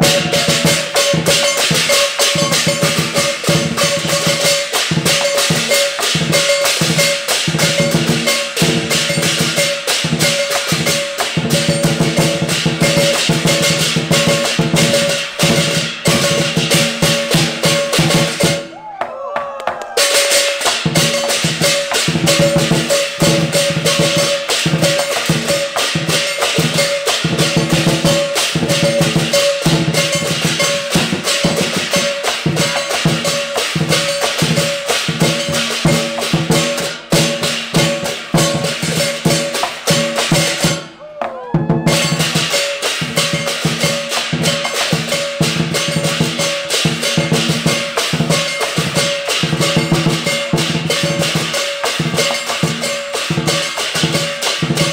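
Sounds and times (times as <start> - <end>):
hand cymbals clashing: 0.0 - 18.9, 20.0 - 41.1, 41.8 - 54.9
drum beaten with sticks: 0.0 - 54.9.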